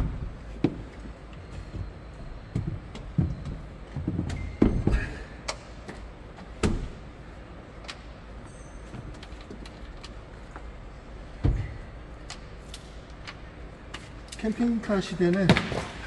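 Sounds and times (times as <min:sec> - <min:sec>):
knocks and heavy thuds: 0:11.4 - 0:11.8.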